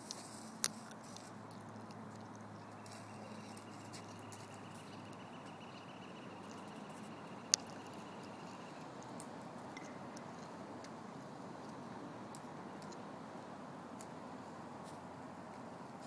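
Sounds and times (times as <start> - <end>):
faint ticks: 0.0 - 11.0
faint high whine: 2.6 - 8.9.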